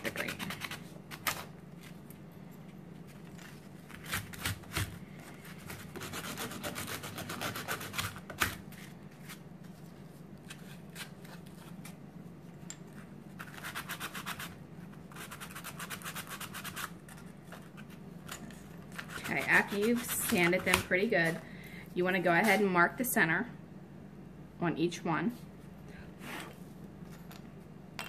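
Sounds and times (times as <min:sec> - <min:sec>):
sandpaper scraping wood: 0:05.9 - 0:08.1.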